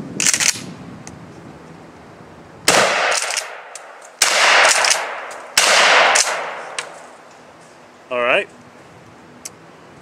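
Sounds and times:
shotgun shots with rolling echo: 2.7 - 6.8.

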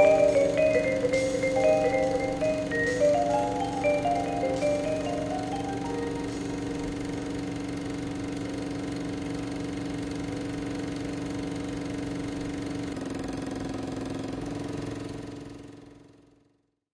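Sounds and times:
sustained music chord: 0.0 - 8.1.

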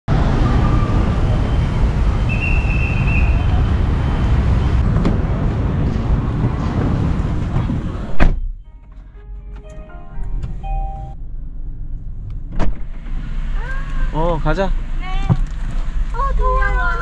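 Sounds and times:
motorbikes and cars passing: 0.1 - 8.1
high-pitched tone: 9.2 - 11.2.

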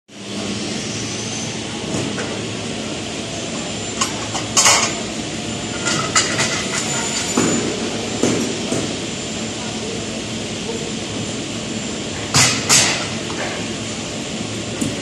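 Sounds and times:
factory floor hum: 0.1 - 15.0.

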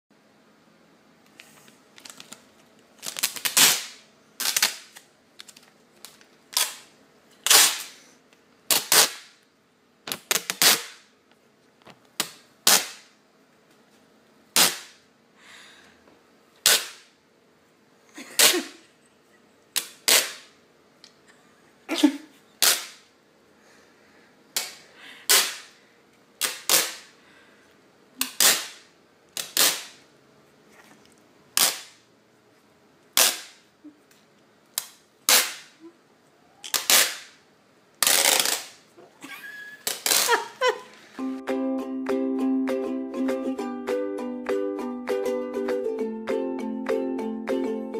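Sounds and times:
adhesive tape ripping: 3.0 - 5.6, 6.5 - 8.0, 8.7 - 9.4, 10.1 - 11.1, 12.2 - 13.1, 14.5 - 15.0, 16.6 - 17.1, 19.8 - 20.5, 22.6 - 23.0, 25.3 - 25.7, 26.4 - 27.1, 28.2 - 30.0, 31.5 - 32.0, 33.1 - 33.6, 34.8 - 35.8, 36.7 - 37.4, 38.0 - 38.8, 39.8 - 40.7.

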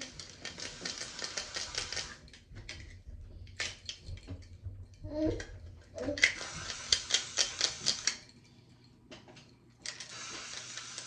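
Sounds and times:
spray bottle spritzes: 6.2 - 8.2, 10.0 - 11.0.

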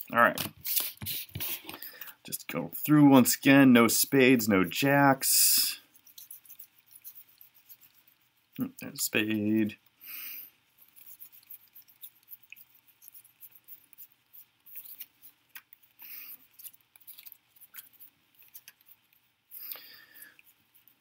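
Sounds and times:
playing cards sliding and swishing: 0.4 - 1.8.

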